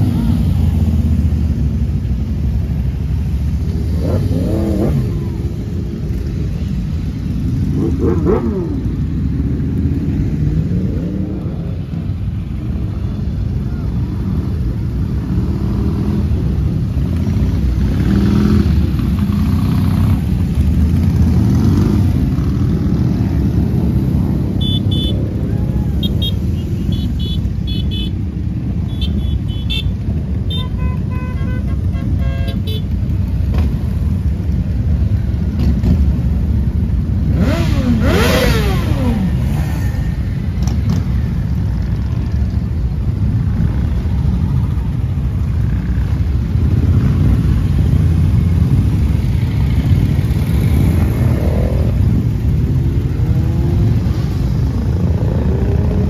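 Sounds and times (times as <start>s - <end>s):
motorcycle engines rumbling: 0.0s - 56.0s
motorcycle engine revving: 3.7s - 5.5s, 7.6s - 9.1s, 37.2s - 41.2s.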